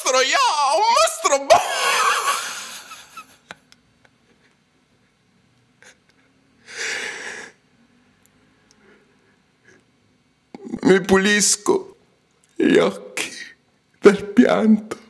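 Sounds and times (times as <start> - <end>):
man shouting: 0.0 - 2.2.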